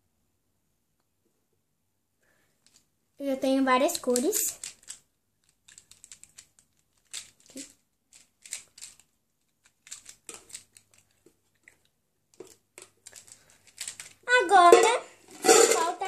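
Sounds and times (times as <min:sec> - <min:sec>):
plastic markers clicking and rattling: 0:03.8 - 0:14.2.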